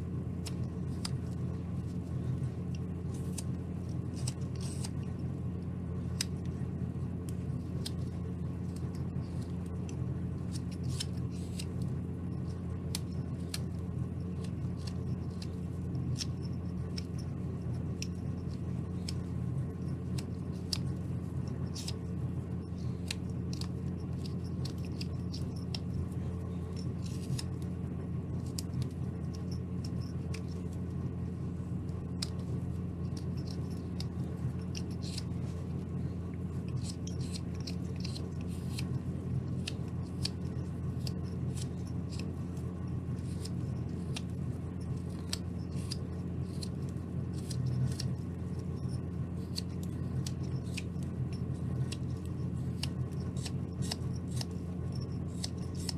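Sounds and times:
steady low hum: 0.0 - 55.9
knife slicing wood clicks: 20.2 - 22.0, 36.6 - 38.9, 51.8 - 55.9.

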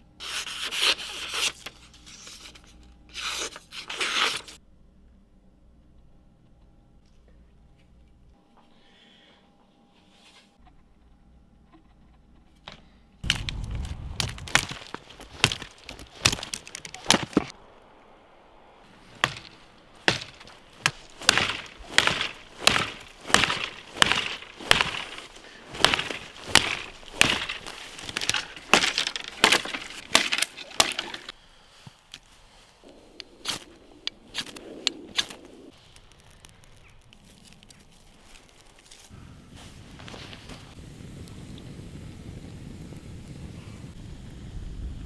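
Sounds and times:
knife slicing wood: 14.2 - 17.5, 19.1 - 31.3.

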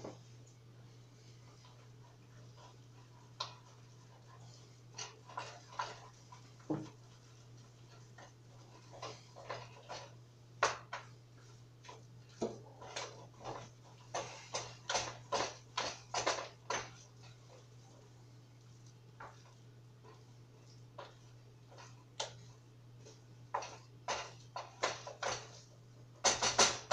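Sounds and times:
low electrical hum: 0.0 - 26.9.

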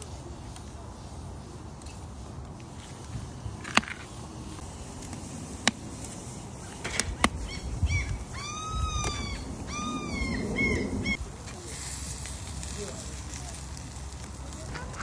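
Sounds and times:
bird calling: 6.6 - 11.2.

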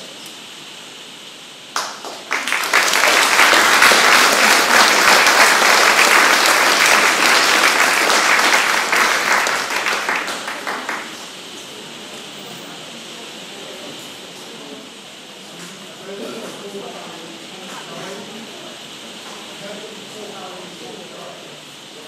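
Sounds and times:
audience applauding: 1.7 - 11.6.

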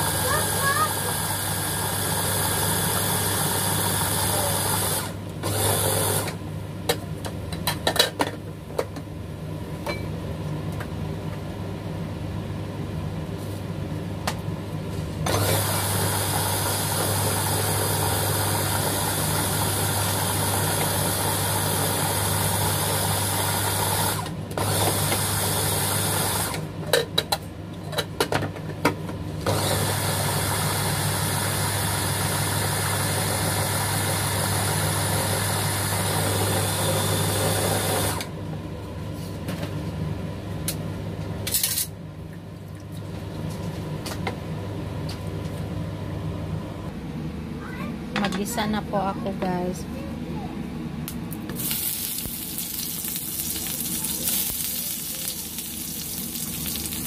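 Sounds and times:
food chopper motor running: 0.0 - 6.4, 15.3 - 26.7, 29.4 - 38.3, 51.5 - 57.0.

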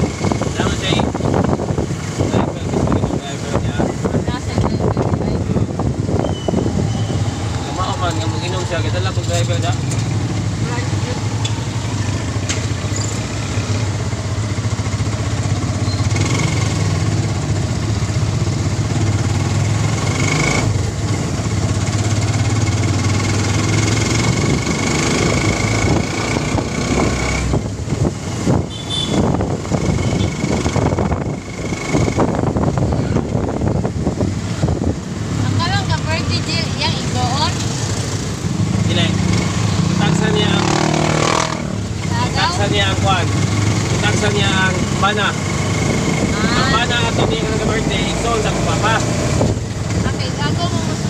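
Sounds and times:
wind noise: 0.0 - 10.6, 23.3 - 35.9, 41.1 - 48.0, 49.2 - 51.0
passing traffic: 0.0 - 51.0.

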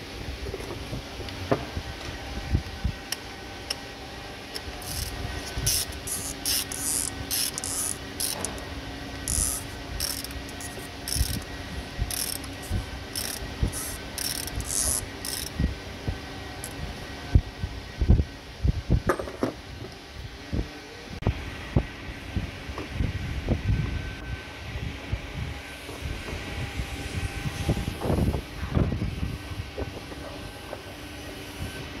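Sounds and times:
socket ratchet clicking: 4.8 - 8.6, 9.2 - 11.5, 12.1 - 15.6.

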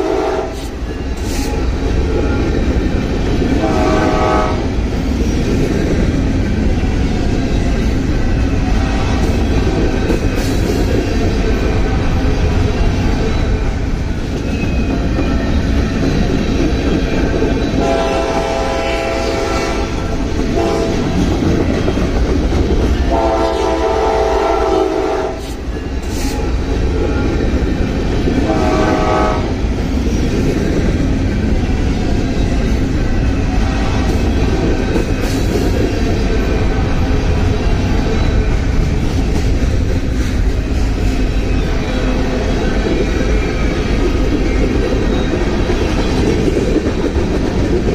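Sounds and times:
locomotive horn blasts: 0.0 - 0.6, 3.6 - 4.7, 17.8 - 21.1, 23.1 - 25.4, 28.4 - 29.5
freight train rumble: 0.0 - 47.9
train wheel clatter: 0.0 - 47.9.

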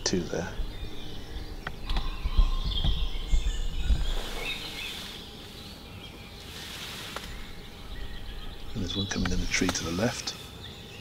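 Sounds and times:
low rumble: 0.0 - 5.5, 7.3 - 9.9
wild birds singing: 0.0 - 11.0.

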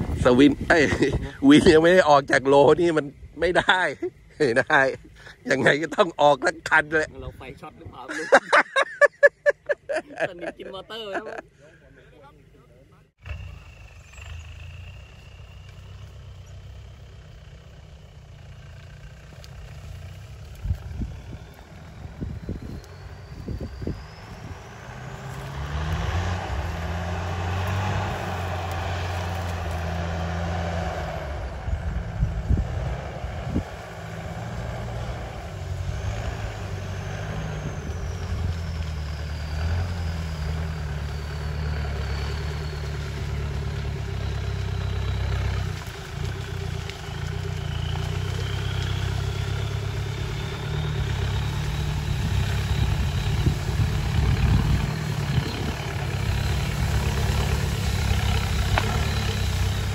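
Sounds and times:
pickup engine revving: 13.2 - 59.9.

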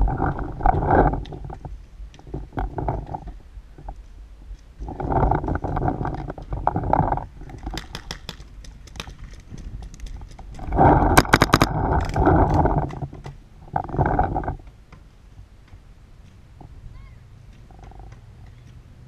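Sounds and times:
paintball gun pops: 7.6 - 10.2.

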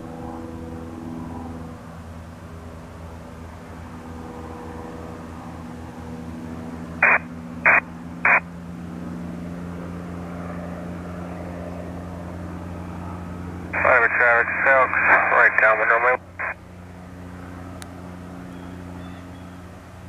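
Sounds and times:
piston aircraft engine drone: 0.0 - 20.0
radio squelch bursts: 7.0 - 8.4, 13.8 - 16.6.

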